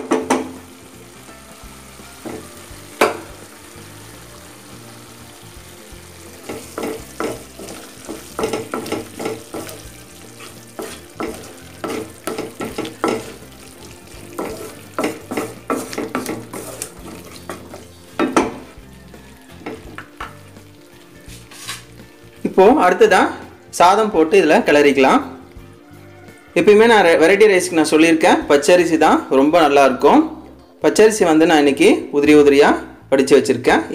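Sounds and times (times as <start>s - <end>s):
faint sizzle: 0.0s - 27.5s
wooden spatula scraping a pan: 6.3s - 20.0s, 20.7s - 22.0s.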